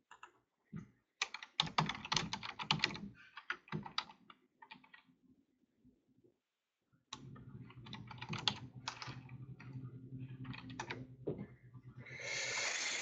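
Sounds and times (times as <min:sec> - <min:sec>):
typing on computer keyboard: 0:01.2 - 0:05.1, 0:07.8 - 0:09.7, 0:10.4 - 0:11.0
steady low hum: 0:07.2 - 0:13.0.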